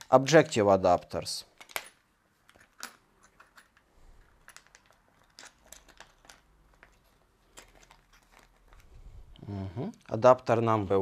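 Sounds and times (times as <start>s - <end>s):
packaging bag crinkling: 4.3s - 9.0s.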